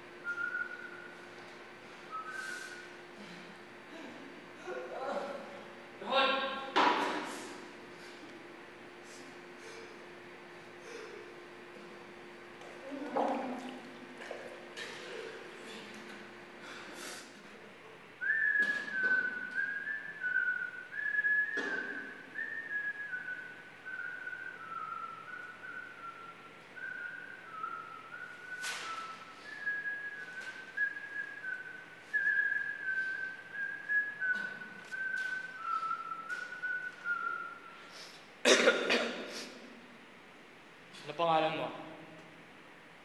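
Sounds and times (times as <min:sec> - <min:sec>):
person whistling a slow tune: 0:00.2 - 0:01.2, 0:02.1 - 0:02.9, 0:18.2 - 0:38.1.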